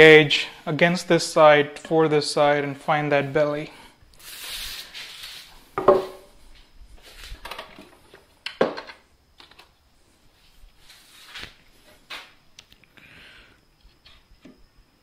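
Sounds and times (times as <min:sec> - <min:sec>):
wood plank knocking on workbench: 0:05.8 - 0:06.2.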